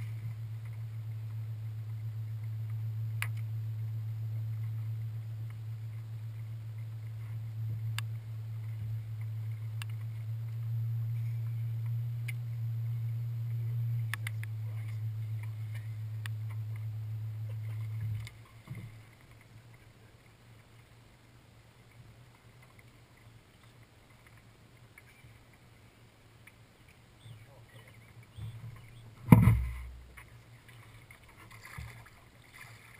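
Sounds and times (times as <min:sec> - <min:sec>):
electric trolling motor humming: 0:00.0 - 0:19.6.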